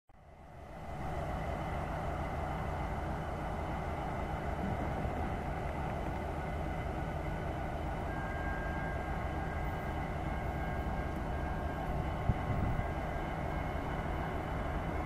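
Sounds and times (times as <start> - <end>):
diesel locomotive engine rumble: 0.1 - 15.0
faint thin high tone: 8.0 - 10.0.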